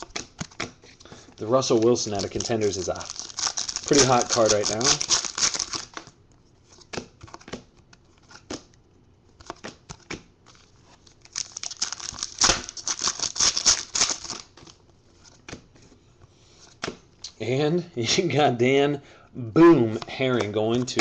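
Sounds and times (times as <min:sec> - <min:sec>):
foil wrapper crinkling and tearing: 0:01.5 - 0:06.0, 0:11.1 - 0:14.8
trading cards clicking and sliding: 0:03.7 - 0:06.1.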